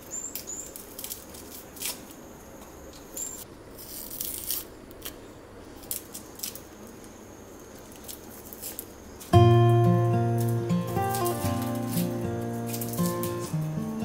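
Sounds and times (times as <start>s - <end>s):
knife scraping shallot skins: 3.8s - 5.2s, 10.3s - 14.0s.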